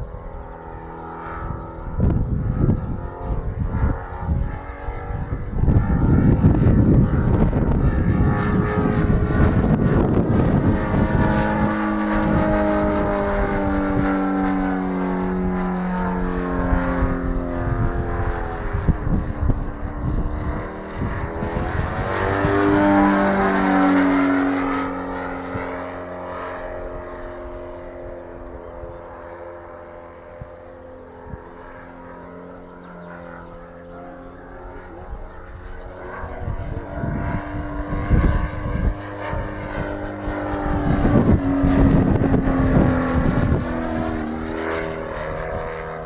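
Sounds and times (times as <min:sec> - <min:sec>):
model aircraft engine flying past: 0:00.0 - 0:46.0
wind rumble on microphone: 0:00.0 - 0:46.0.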